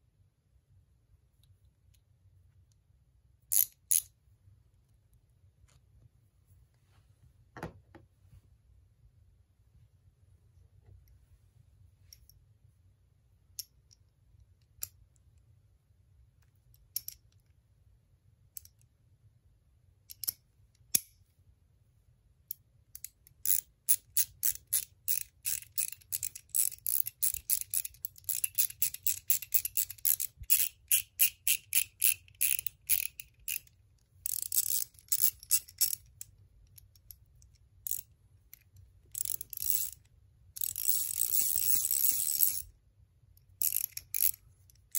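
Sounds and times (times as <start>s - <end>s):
ratchet clicking: 23.0s - 33.7s, 34.3s - 36.0s, 39.1s - 40.0s, 40.6s - 42.6s, 43.6s - 44.4s.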